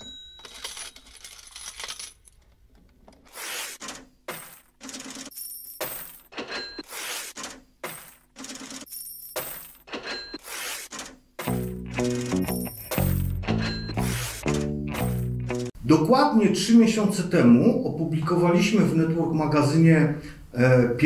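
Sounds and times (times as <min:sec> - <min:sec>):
metallic clinks and clatters: 0:00.0 - 0:02.4.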